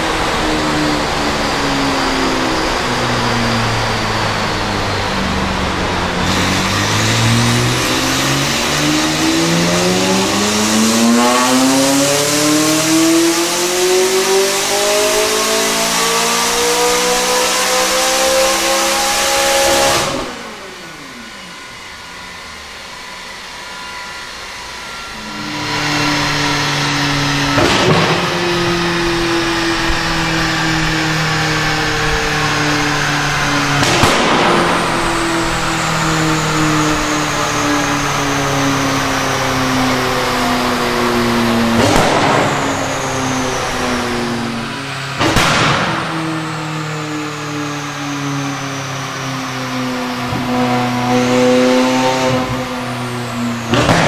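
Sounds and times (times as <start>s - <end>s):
car engine revving on a dyno: 0.0s - 54.0s
sharp exhaust crack: 2.7s - 17.7s, 25.0s - 49.2s, 50.2s - 54.0s.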